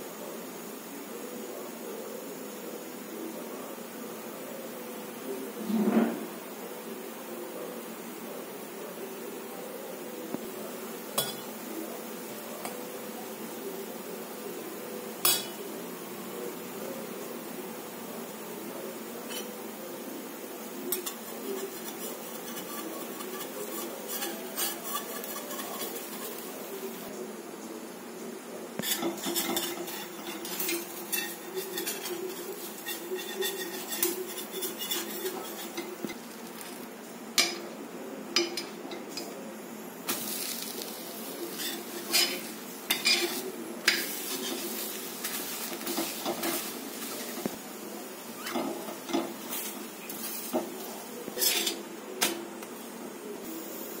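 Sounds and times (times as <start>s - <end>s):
batter sizzling on griddle: 4.4s - 27.8s, 28.5s - 54.0s
metal spatula scraping pan: 19.3s - 19.6s, 20.9s - 27.1s, 28.8s - 36.7s, 41.5s - 47.5s, 48.4s - 51.8s.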